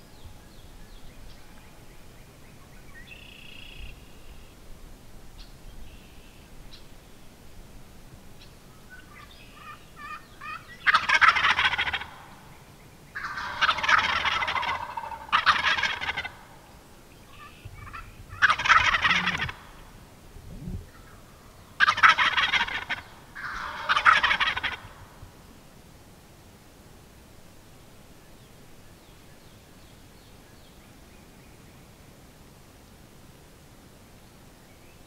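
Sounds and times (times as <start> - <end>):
wild turkey gobbling: 3.2 - 4.4, 8.9 - 20.0, 20.6 - 25.1.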